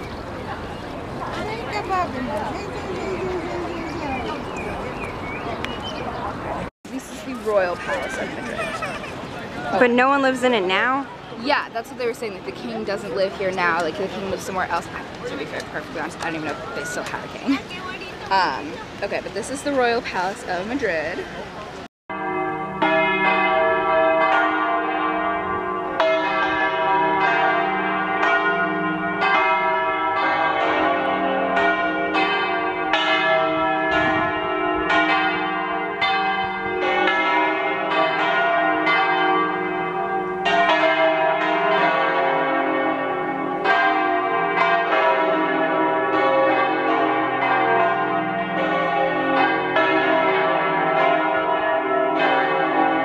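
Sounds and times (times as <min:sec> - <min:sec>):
bells ringing: 0:22.1 - 0:53.0.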